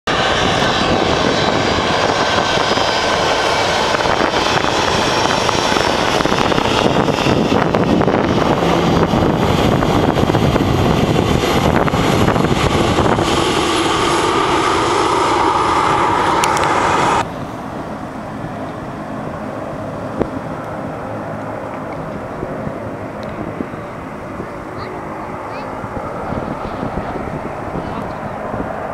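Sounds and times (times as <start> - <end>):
jet engines at taxi power: 0.1 - 28.9.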